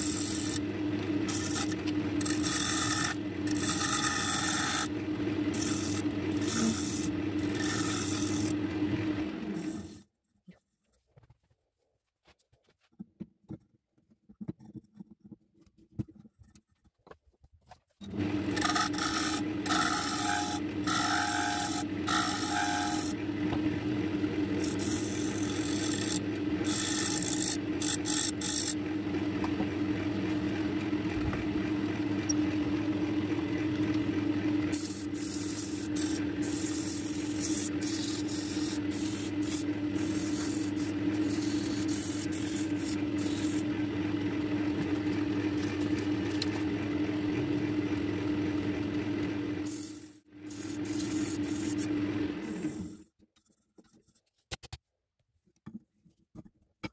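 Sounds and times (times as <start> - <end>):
tool scraping spinning wood: 0.0 - 10.0, 18.0 - 47.6, 49.3 - 53.0
wood lathe humming: 0.0 - 10.0, 18.1 - 52.9.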